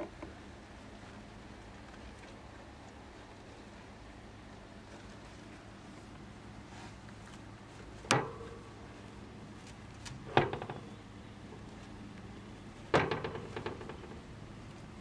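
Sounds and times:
faint steady hum: 0.0s - 15.0s
sharp knocks: 8.0s - 8.8s, 10.2s - 11.0s, 12.9s - 14.3s
rattle of small clicks: 12.9s - 14.3s.

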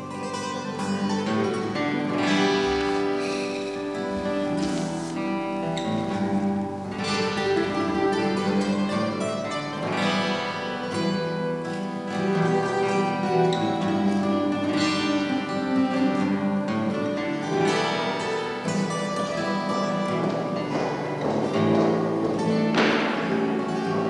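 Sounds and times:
acoustic guitar music: 0.0s - 24.0s.

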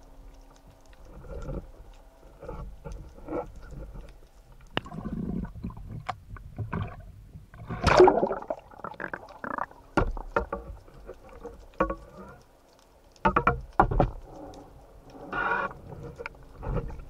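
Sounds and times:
seawater sloshing and splashing: 4.7s - 12.6s
sharp clicks and knocks: 10.0s - 14.6s.

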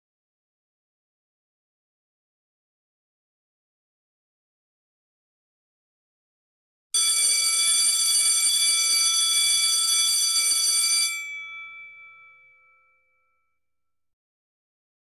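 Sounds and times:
school bell ringing: 7.0s - 13.3s.

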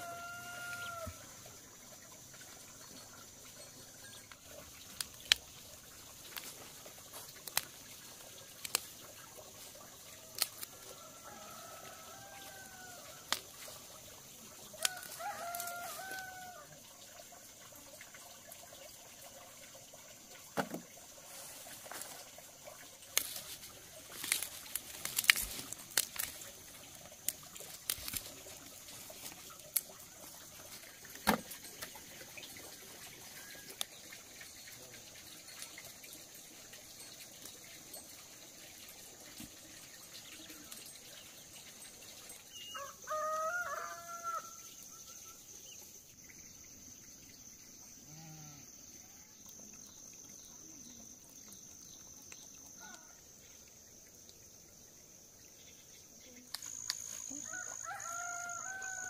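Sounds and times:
rooster crowing: 0.0s - 1.4s, 10.9s - 13.4s, 14.8s - 16.8s, 42.8s - 44.7s, 57.4s - 59.0s.

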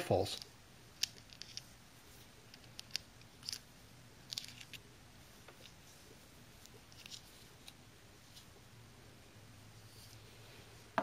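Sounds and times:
plastic toy parts clicking: 1.0s - 1.7s, 2.5s - 4.8s.

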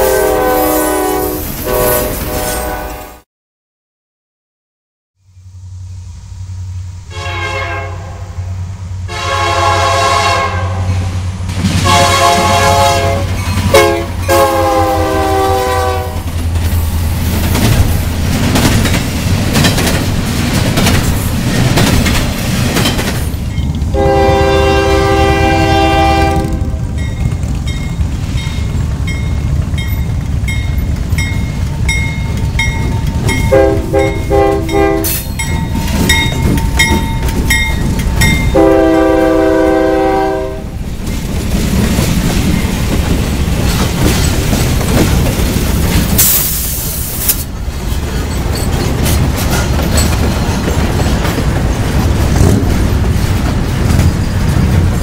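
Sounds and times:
freight train rumbling: 0.0s - 3.2s, 5.2s - 55.0s
locomotive air horn blasts: 0.0s - 3.2s, 7.1s - 11.1s, 11.8s - 16.3s, 23.9s - 26.9s, 33.4s - 35.4s, 38.4s - 40.8s
wheels clattering over rails: 16.2s - 24.0s, 26.2s - 38.6s, 40.8s - 46.3s, 47.4s - 55.0s.

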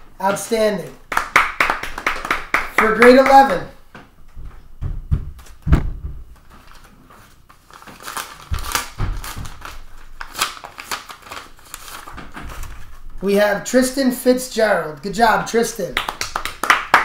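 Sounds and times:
dull thumps: 3.9s - 6.4s
paper envelope rustling: 6.4s - 13.1s.

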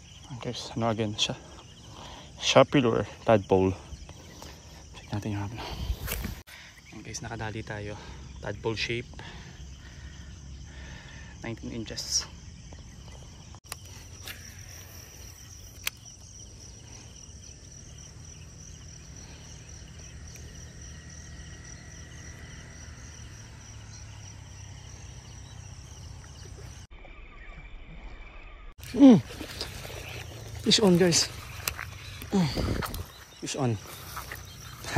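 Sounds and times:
insects chirping: 0.0s - 34.9s
sharp clicks: 15.4s - 16.3s.

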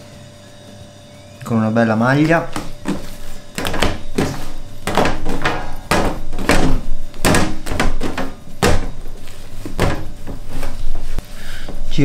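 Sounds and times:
dough thudding: 2.3s - 11.8s.

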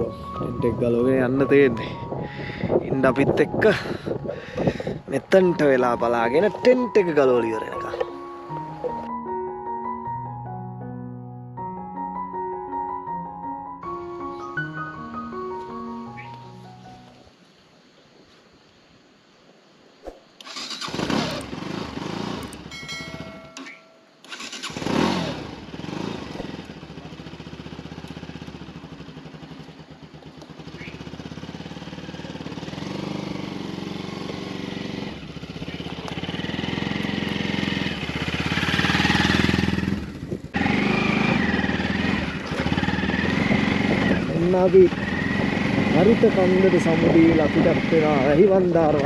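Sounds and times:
motorcycle engine revving: 20.4s - 49.0s.

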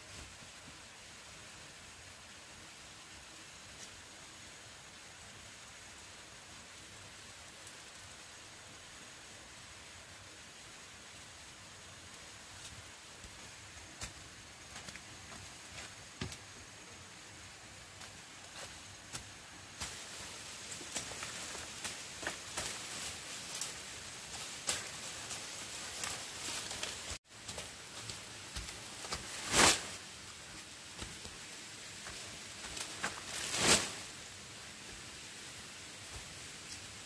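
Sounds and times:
rustling: 12.4s - 37.0s.

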